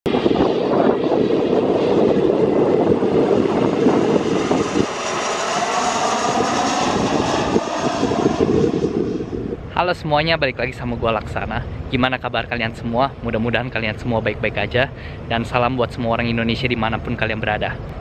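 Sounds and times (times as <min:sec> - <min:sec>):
jet flying low overhead: 0:00.1 - 0:18.0.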